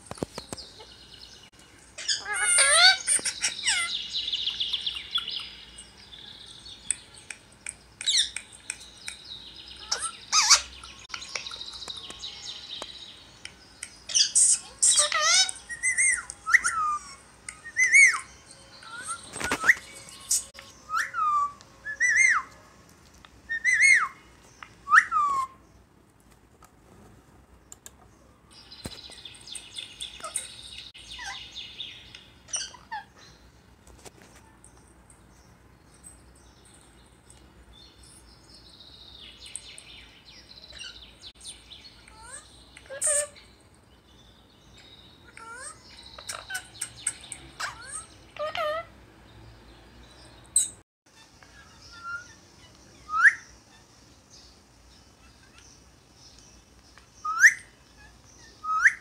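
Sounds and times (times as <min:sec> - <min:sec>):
parakeet chattering: 0:02.0 - 0:05.3, 0:09.8 - 0:11.8, 0:14.1 - 0:19.2, 0:45.2 - 0:48.9.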